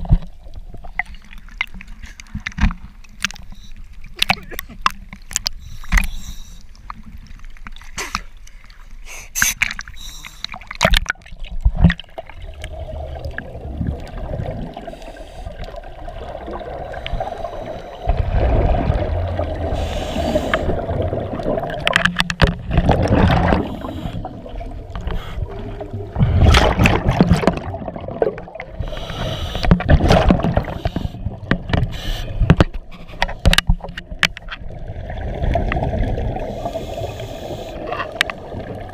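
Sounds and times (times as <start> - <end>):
underwater exhaled bubbles gurgling: 10.5 - 32.7, 33.4 - 38.9.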